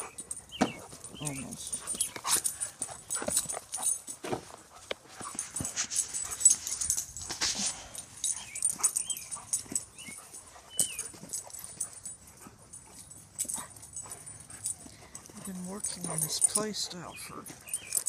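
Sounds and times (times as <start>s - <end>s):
dogs scuffling: 0.0s - 18.0s
dog whimpers and yips: 8.2s - 16.5s.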